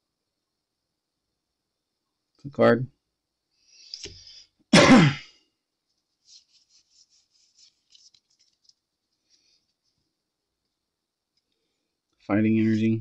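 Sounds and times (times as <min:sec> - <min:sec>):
cards ticking and rustling: 0:06.2 - 0:09.8.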